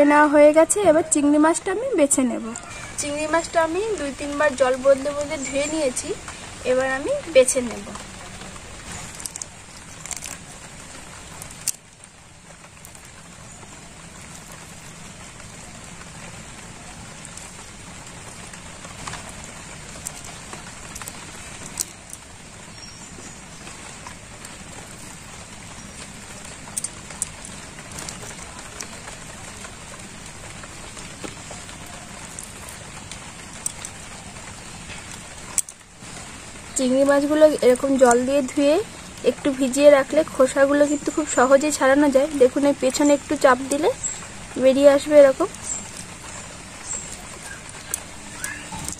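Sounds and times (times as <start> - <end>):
steady hiss: 0.0 - 48.9
wet clicks of prawn shells: 9.0 - 10.5, 11.2 - 12.1, 19.0 - 22.3, 26.6 - 29.0, 32.1 - 34.2, 35.0 - 35.9, 46.9 - 48.9.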